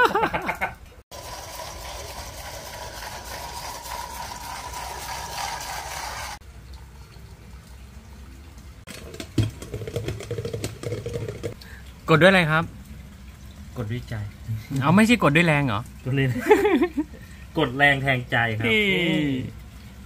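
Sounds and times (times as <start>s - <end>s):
hot water pouring from kettle: 1.1s - 8.0s, 8.9s - 17.6s.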